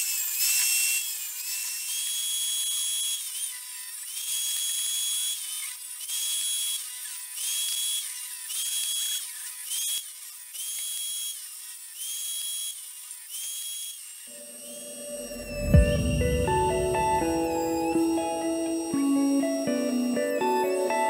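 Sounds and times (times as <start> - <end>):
table saw blade whine: 10.6 - 21.0.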